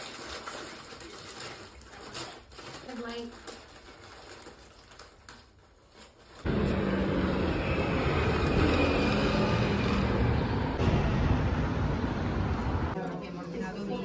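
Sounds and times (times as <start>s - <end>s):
cars driving along road: 6.5s - 13.0s.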